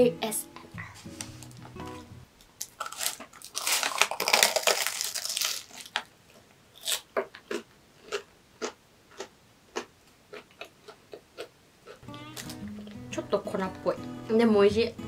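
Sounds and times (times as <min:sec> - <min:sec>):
crunchy pastry chewing: 0:02.6 - 0:12.6.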